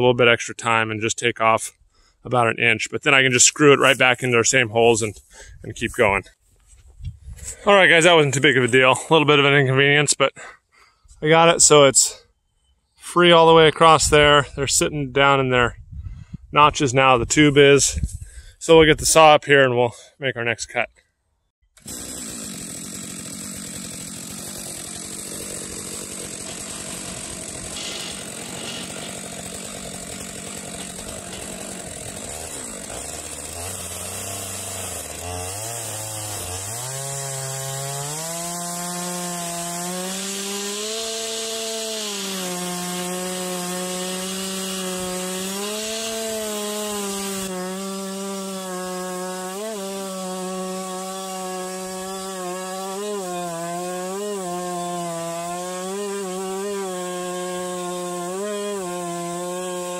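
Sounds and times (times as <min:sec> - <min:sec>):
chainsaw cutting log: 0:21.7 - 0:59.9.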